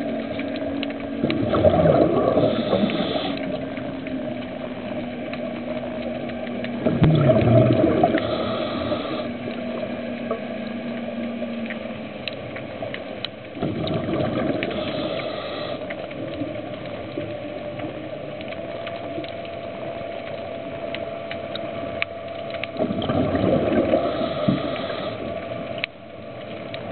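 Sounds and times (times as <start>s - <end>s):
bubbling: 0.0s - 26.9s
sharp underwater clicks: 0.0s - 26.9s
underwater rushing wash: 0.0s - 26.9s.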